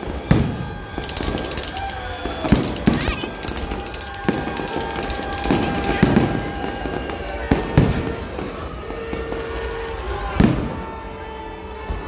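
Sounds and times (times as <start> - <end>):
fireworks bangs: 0.2 - 9.6
fireworks crackling: 0.8 - 10.0.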